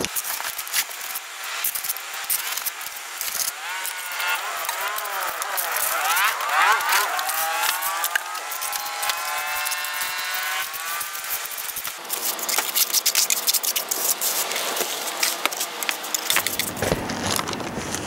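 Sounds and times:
trowel scraping wet concrete: 0.0s - 18.0s
vehicle engine passing: 3.5s - 11.8s.

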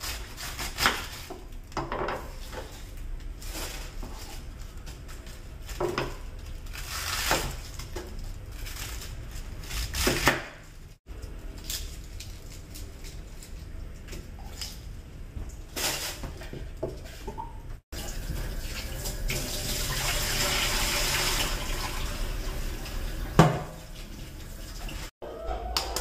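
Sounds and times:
knife slicing cabbage: 0.0s - 1.5s, 6.1s - 10.6s.

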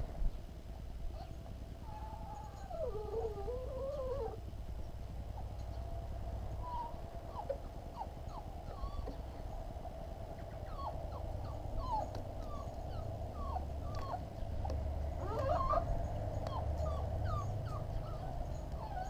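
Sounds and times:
steady low rumble: 0.0s - 19.0s
animal whimpering: 1.2s - 4.4s, 10.6s - 19.0s.

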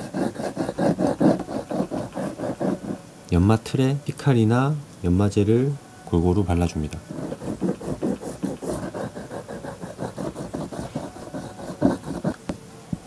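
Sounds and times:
abrasive stick rubbing on wooden board: 0.0s - 3.0s, 7.0s - 12.4s.

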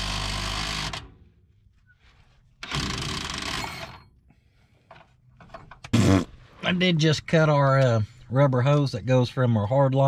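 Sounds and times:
power tool working bolts: 0.0s - 1.2s, 2.6s - 4.1s.

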